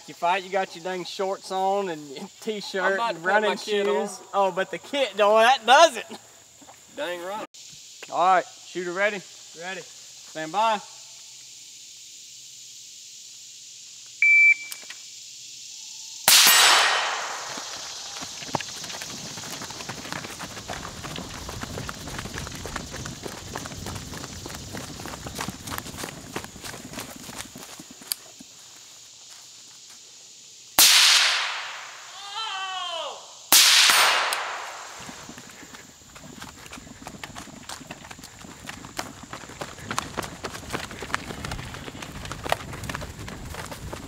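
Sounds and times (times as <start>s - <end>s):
shot timer beep: 14.2s - 14.8s
rifle shots echoing: 16.3s - 17.7s, 30.8s - 32.0s, 33.5s - 35.0s.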